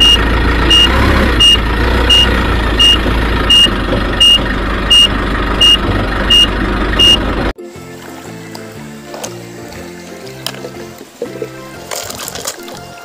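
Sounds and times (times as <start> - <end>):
reversing alarm beeping: 0.0 - 7.3
forklift engine rumble: 0.0 - 7.6.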